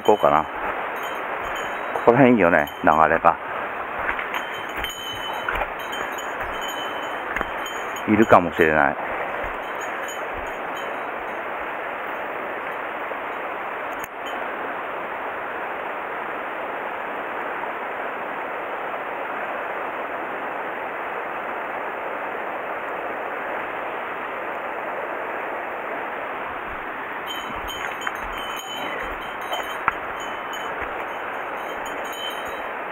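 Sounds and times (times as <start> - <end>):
stream water rushing: 0.0 - 32.9.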